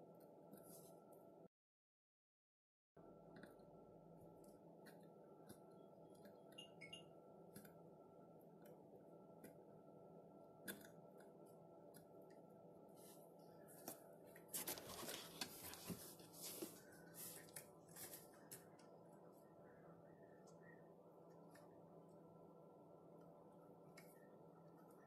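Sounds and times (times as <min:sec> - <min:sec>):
low steady hum: 0:03.0 - 0:25.0
rustling and crackling wires: 0:13.0 - 0:19.0.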